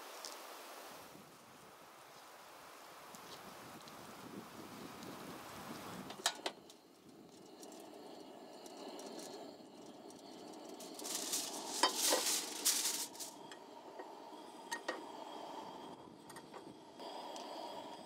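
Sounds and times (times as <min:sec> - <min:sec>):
loud hiss: 0:10.7 - 0:13.5.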